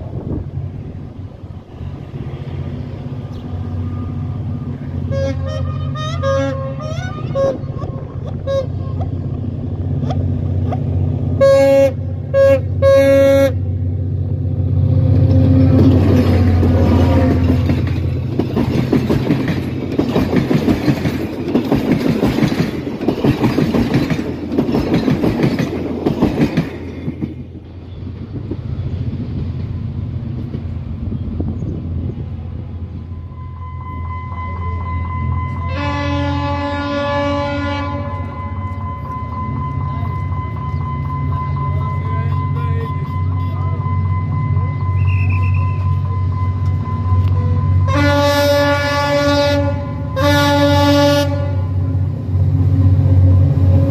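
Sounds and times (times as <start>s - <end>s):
locomotive engine: 0.0s - 53.9s
train horn blasts: 4.9s - 9.2s, 11.3s - 13.8s, 15.0s - 17.7s, 33.1s - 52.1s
train wheels clattering: 15.2s - 30.8s.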